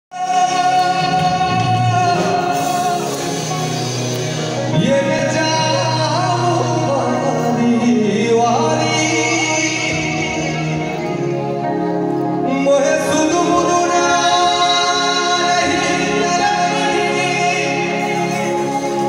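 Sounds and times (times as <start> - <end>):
live band playing: 0.1 - 19.0
man singing: 0.1 - 19.0.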